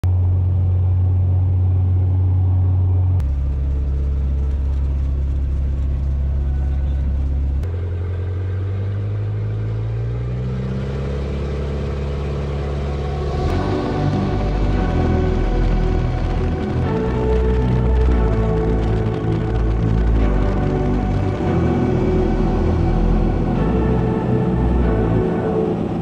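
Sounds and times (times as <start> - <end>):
light aircraft engine: 0.1 - 26.0.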